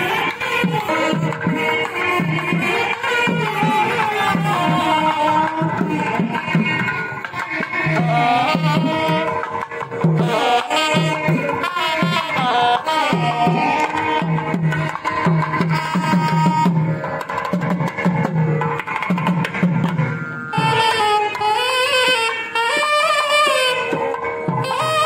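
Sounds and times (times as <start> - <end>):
drum steady beat: 0.0 - 25.0.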